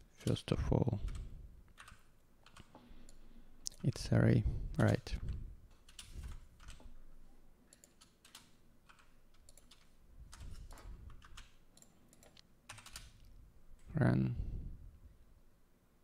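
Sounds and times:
faint keyboard typing: 1.0s - 4.2s, 4.8s - 7.1s, 7.7s - 14.0s.

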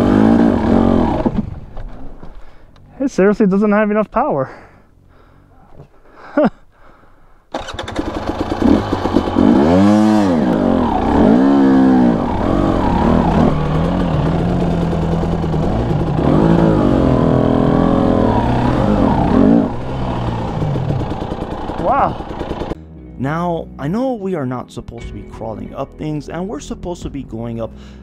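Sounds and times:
dirt bike engine starting and revving: 0.0s - 1.9s, 7.5s - 22.8s.

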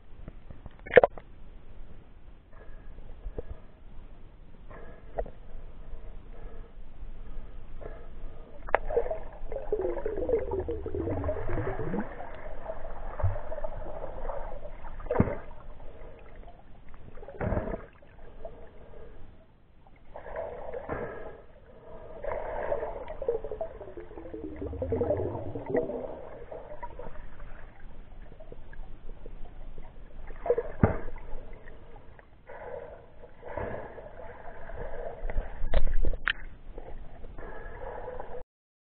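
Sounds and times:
water bubbling underwater: 8.6s - 18.7s, 19.9s - 32.2s.

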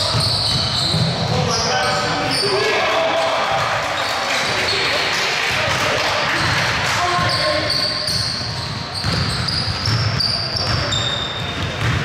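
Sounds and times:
sneakers squeaking on floor: 0.0s - 2.8s, 3.8s - 5.0s, 6.4s - 12.0s
basketball bouncing: 8.1s - 12.0s.

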